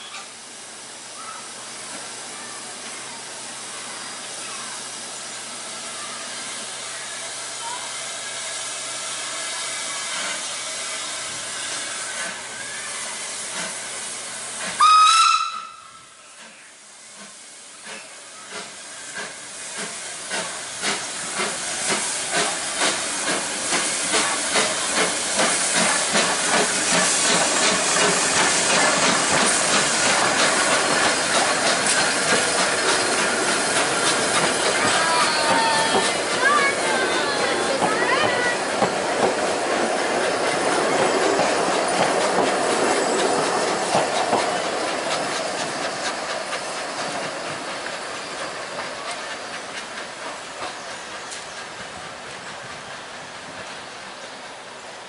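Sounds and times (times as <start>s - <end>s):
steam hissing: 0.0s - 55.0s
steam whistle blast: 14.8s - 16.2s.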